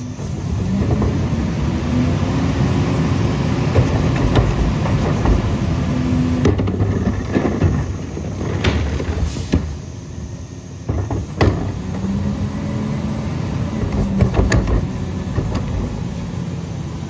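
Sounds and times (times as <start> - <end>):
garbage truck diesel engine revving: 0.0 - 17.0
hydraulic packer compacting: 0.0 - 17.0
sharp knocks of trash and carts: 0.2 - 1.7, 3.0 - 9.9, 10.8 - 12.3, 13.6 - 16.4.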